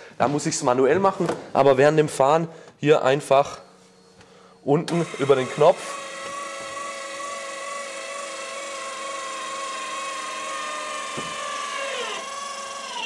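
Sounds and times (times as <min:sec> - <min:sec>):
electric motor whining: 0:04.9 - 0:13.0.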